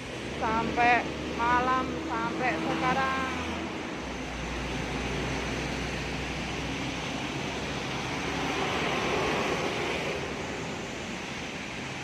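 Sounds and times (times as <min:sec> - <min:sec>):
tyre hiss on wet road: 0:03.3 - 0:12.0.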